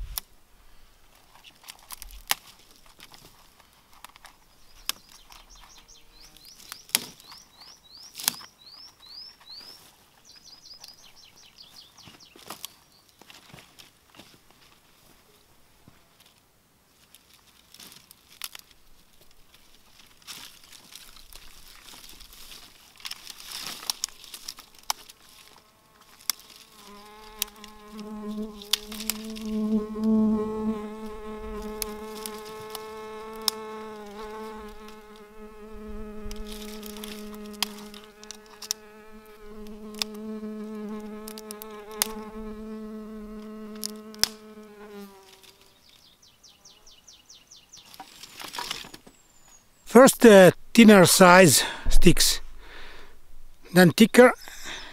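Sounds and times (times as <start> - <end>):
flying insect buzzing: 25.3 - 45.8.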